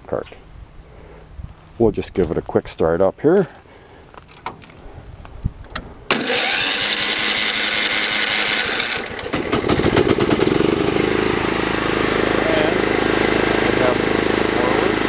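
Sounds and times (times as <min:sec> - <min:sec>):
mower engine starting and running: 0:06.1 - 0:15.0.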